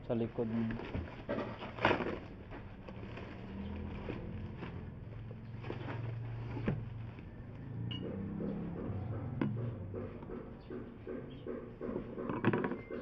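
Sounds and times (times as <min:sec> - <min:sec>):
plastic wrapping crinkling: 0:00.3 - 0:07.4
low engine-like hum: 0:02.3 - 0:11.8.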